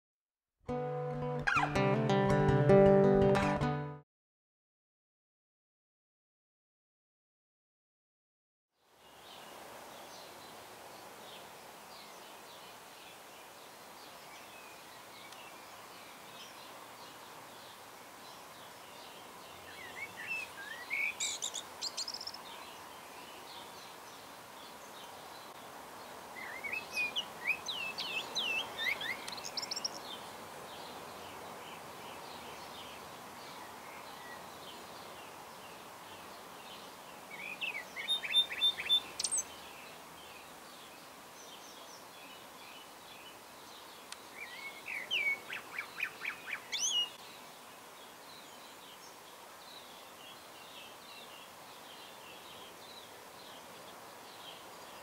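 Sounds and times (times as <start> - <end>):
birds chirping and singing: 1.5 - 1.7
outdoor background noise: 8.8 - 55.0.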